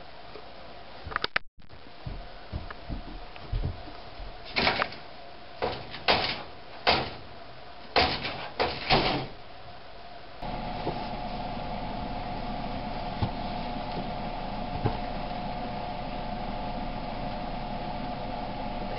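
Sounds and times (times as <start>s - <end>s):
faint steady hum: 9.3s - 18.9s.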